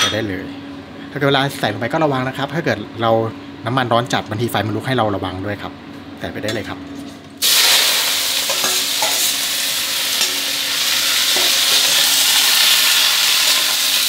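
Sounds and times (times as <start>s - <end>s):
greens sizzling in hot oil: 7.4s - 14.0s.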